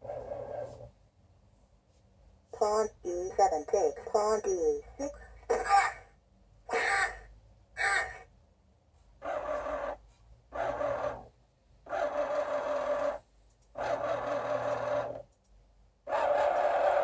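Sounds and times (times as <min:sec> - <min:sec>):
motorised carriage whirring: 0:13.8 - 0:15.3.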